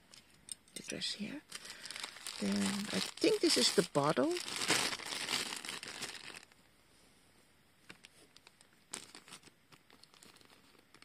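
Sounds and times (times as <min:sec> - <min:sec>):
plastic bag crinkling: 0:01.4 - 0:06.6, 0:07.9 - 0:11.0.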